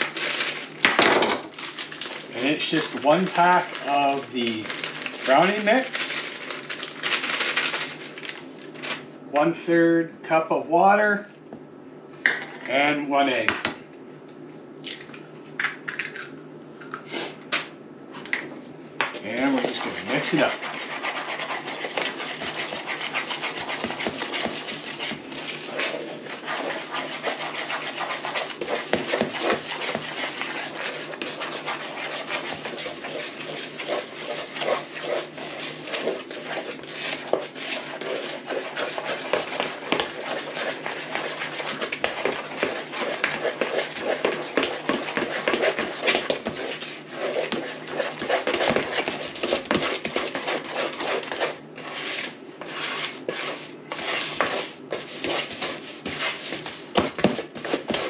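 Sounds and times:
spoon scraping mixing bowl: 0:19.2 - 0:58.0.

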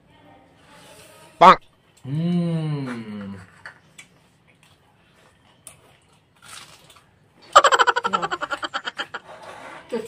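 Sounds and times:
soft wet eating sound: 0:01.8 - 0:07.5.

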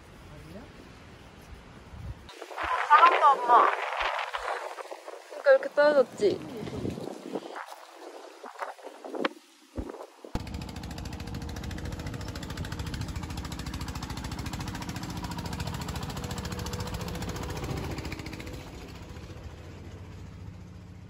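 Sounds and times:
tractor engine chugging: 0:10.4 - 0:21.0.

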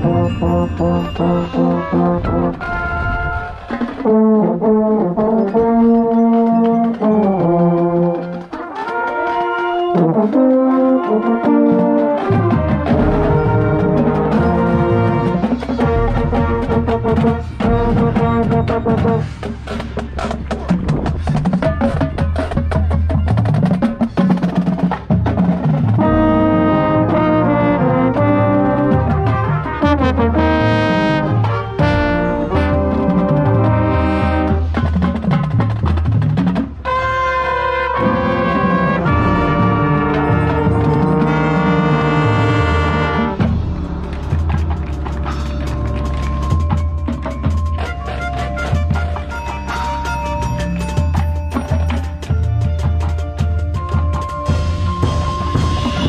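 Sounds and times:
baritone horn: 0:00.0 - 0:19.6, 0:25.9 - 0:34.9, 0:36.8 - 0:46.6, 0:47.6 - 0:50.5
brass chords: 0:00.0 - 0:20.5, 0:25.2 - 0:35.0, 0:36.6 - 0:51.0
low brass and bass drum: 0:00.0 - 0:23.2, 0:23.8 - 0:49.7, 0:53.8 - 0:56.0
marching drum strokes: 0:00.0 - 0:56.0.

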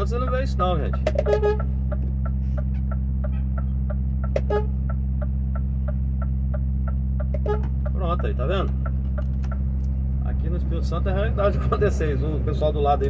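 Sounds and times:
diesel engine idling: 0:00.0 - 0:13.0
hazard light flasher ticking: 0:00.8 - 0:09.7.

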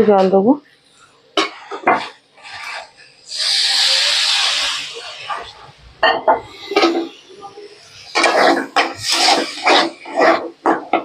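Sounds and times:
utensils knocking and scraping wok: 0:01.4 - 0:03.4, 0:04.5 - 0:11.0
water sizzling in hot wok: 0:01.4 - 0:05.6, 0:06.5 - 0:11.0.

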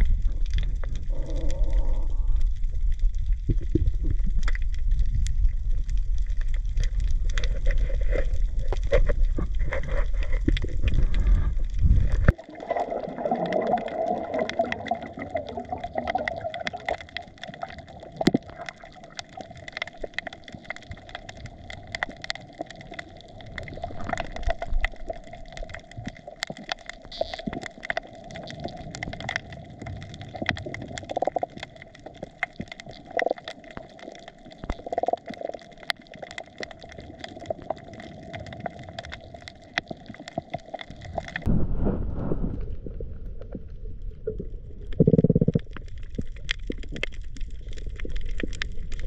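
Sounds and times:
low rumble: 0:00.0 - 0:12.4, 0:41.4 - 0:49.0
underwater crackle of clicks: 0:00.0 - 0:41.5, 0:42.5 - 0:49.0.

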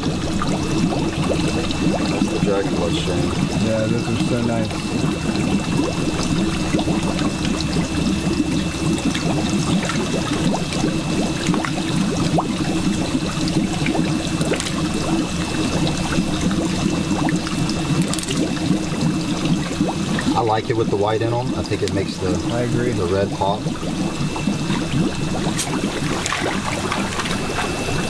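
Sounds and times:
thin steady whine: 0:00.0 - 0:28.0
water pouring into tank: 0:00.0 - 0:28.0
fish splashing in net: 0:04.8 - 0:20.3, 0:23.7 - 0:28.0.

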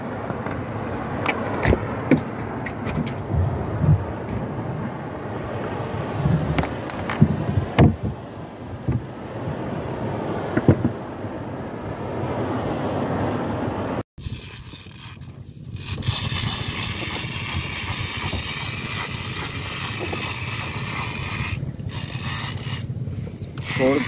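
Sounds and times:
boat engine humming: 0:00.0 - 0:24.0
sea noise: 0:00.0 - 0:24.0
wind: 0:00.0 - 0:24.0.

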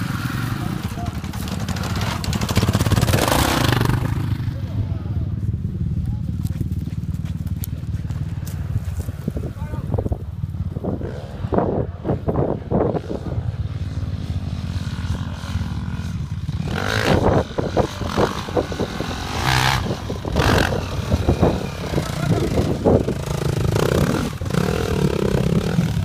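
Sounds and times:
dirt bike engine revving: 0:00.0 - 0:09.5, 0:10.4 - 0:26.0.

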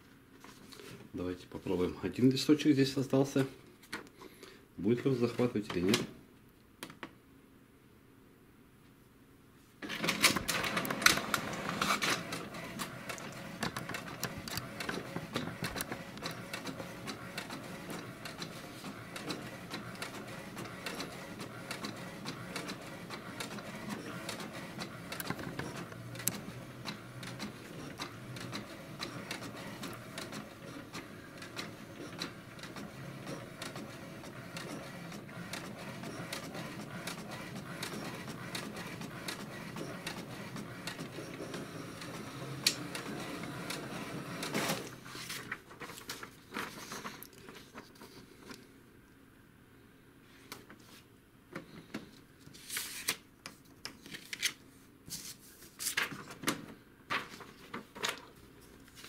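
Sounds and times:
printer grabbing paper clatter: 0:09.8 - 0:47.8, 0:55.9 - 0:58.4.

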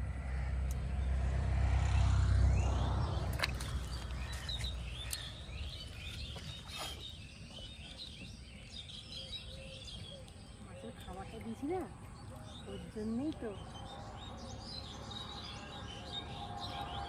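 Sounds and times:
low rumble: 0:00.0 - 0:06.2
small birds chirping: 0:00.2 - 0:17.0.

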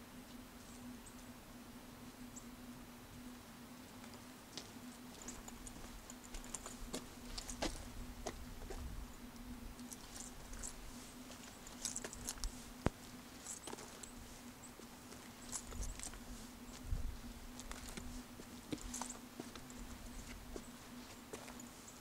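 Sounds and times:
faint steady hum: 0:00.0 - 0:22.0
footsteps crunching on needles and twigs: 0:04.0 - 0:09.0.

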